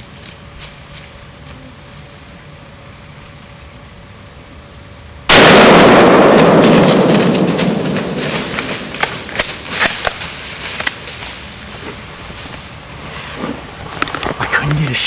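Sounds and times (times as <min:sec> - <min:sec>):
rifle shot echoing: 0:05.3 - 0:10.1.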